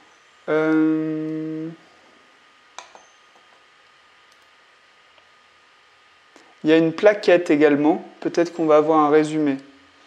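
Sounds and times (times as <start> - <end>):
man making hesitation sound: 0.5 - 1.8.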